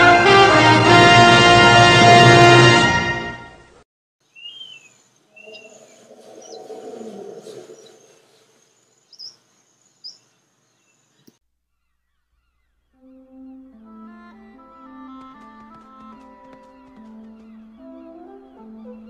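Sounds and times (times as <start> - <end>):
music: 0.0 - 3.8, 13.0 - 19.0
birds chirping: 4.2 - 13.7, 15.1 - 19.0
low animal call sliding down: 5.3 - 8.6.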